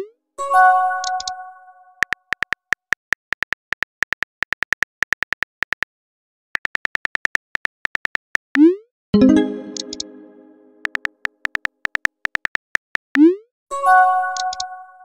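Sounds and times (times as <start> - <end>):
phone keyboard typing clicks: 1.0 - 1.4, 2.0 - 5.9, 9.6 - 10.1, 10.8 - 13.2, 14.4 - 14.7
short synthesized chime: 9.2 - 10.8.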